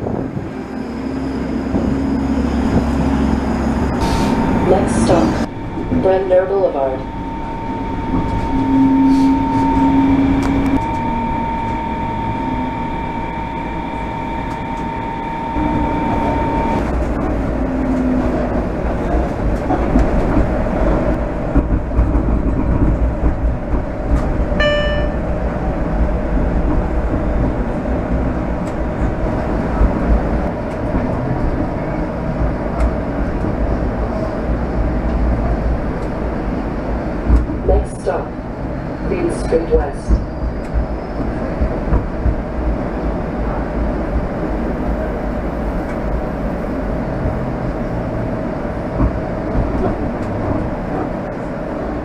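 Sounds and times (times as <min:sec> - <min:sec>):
rumble of streetcars and traffic: 0:00.0 - 0:52.0
streetcar traction drive whining: 0:00.0 - 0:52.0
short ringing tone: 0:06.8 - 0:17.0, 0:24.6 - 0:25.3.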